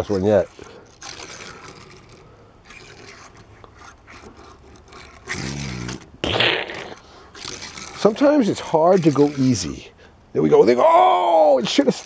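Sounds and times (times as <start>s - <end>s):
toy car rolling on wood: 0.0s - 6.1s, 6.7s - 9.9s.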